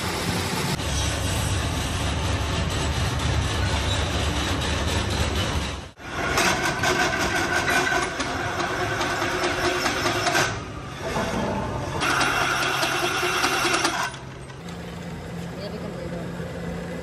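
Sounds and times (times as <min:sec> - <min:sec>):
drill press cutting metal: 0:12.0 - 0:14.2.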